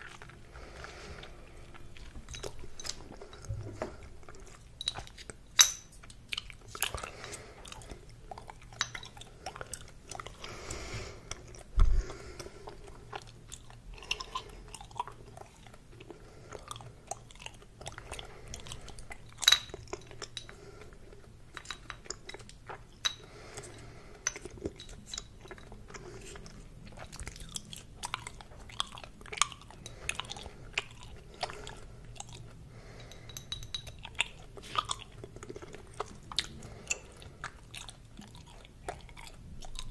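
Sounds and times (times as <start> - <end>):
gum chewing smacks and clicks: 6.0 - 39.9.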